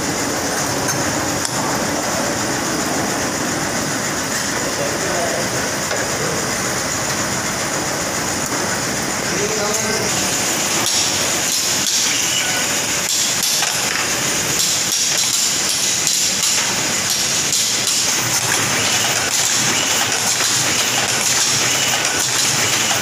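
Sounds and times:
steady high hiss: 0:01.1 - 0:22.4
machine clicking and clatter: 0:10.8 - 0:12.1, 0:13.0 - 0:23.0.

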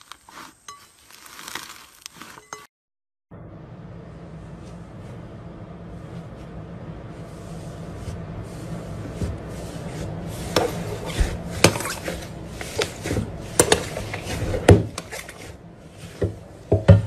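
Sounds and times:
hands squeezing slime: 0:00.0 - 0:02.4
steady low hum: 0:03.3 - 0:17.0.

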